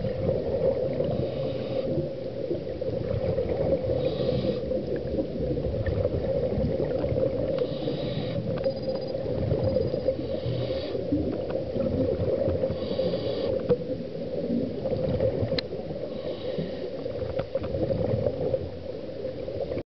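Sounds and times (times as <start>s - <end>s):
gurgling exhale bubbles: 0.0s - 19.8s
regulator hissing inhales: 1.1s - 2.0s, 4.0s - 4.7s, 7.6s - 8.6s, 10.2s - 11.1s, 12.7s - 13.6s, 16.1s - 17.0s.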